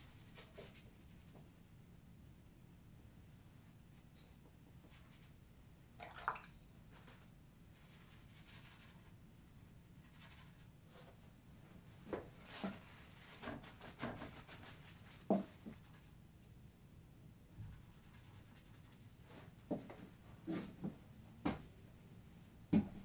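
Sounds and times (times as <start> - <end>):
brush scratching on paper: 0.0 - 1.4, 7.8 - 9.1, 10.0 - 11.2, 12.5 - 16.6, 17.7 - 19.4.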